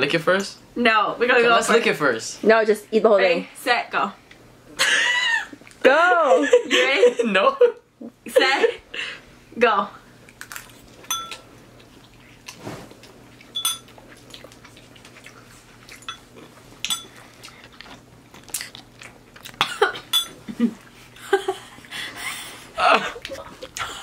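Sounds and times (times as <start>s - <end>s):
people chewing noodles: 10.2s - 24.0s
utensils clinking on ceramic bowls: 11.0s - 11.4s, 13.5s - 14.0s, 16.0s - 17.2s, 19.7s - 20.4s.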